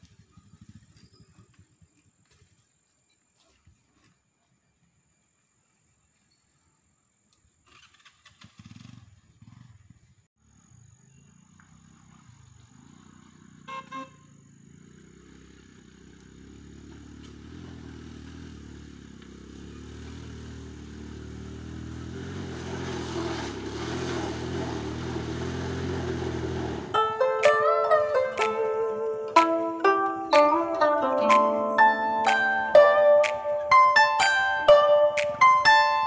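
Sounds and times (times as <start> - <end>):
scooter engine running: 0.0 - 1.9, 7.7 - 36.0
scooter horn beeps: 13.6 - 14.4.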